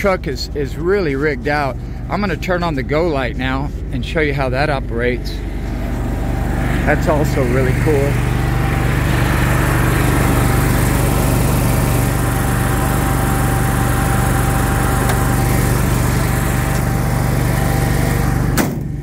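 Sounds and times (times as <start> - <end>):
air compressor whine: 0.0 - 4.0, 5.1 - 19.0
generator engine hum: 0.0 - 19.0.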